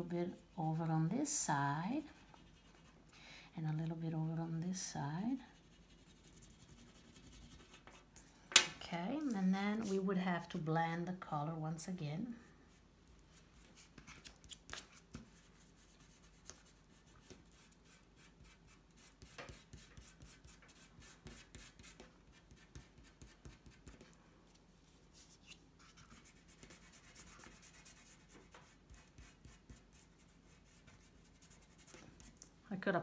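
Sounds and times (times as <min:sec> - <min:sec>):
fingertips rubbing pastel on paper: 0:05.5 - 0:08.3, 0:13.3 - 0:24.2, 0:24.9 - 0:32.3.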